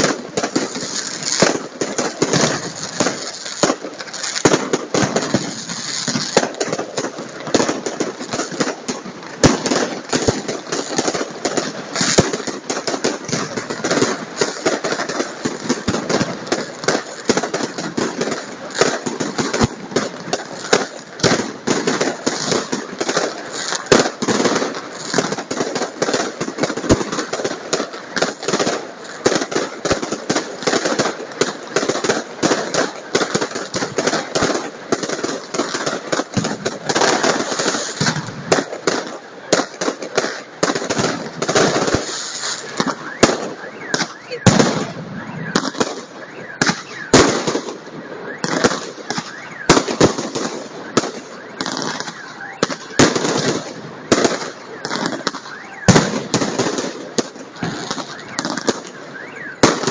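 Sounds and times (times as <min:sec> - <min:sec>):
fireworks bangs and crackles: 0:00.0 - 0:59.9.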